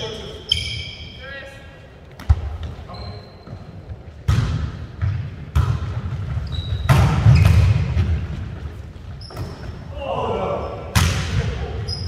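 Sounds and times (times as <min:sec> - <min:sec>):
sneaker squeaks on court: 0:00.0 - 0:01.2, 0:02.3 - 0:03.8, 0:06.3 - 0:08.0, 0:09.2 - 0:09.8, 0:11.8 - 0:12.0
volleyball slaps echoing: 0:02.2 - 0:02.8, 0:04.1 - 0:08.6, 0:10.8 - 0:11.8.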